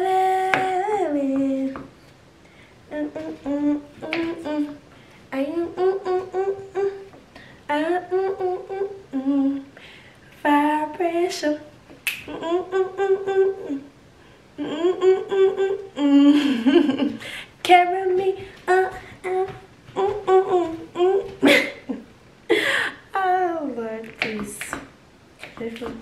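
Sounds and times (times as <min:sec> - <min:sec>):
woman humming: 0:02.9 - 0:09.7, 0:12.3 - 0:13.9, 0:14.6 - 0:22.1.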